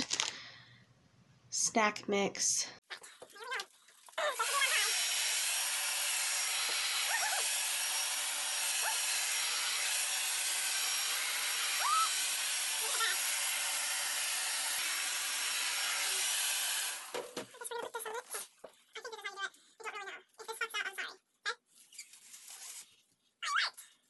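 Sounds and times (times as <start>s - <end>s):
hair dryer blowing: 4.4s - 17.4s.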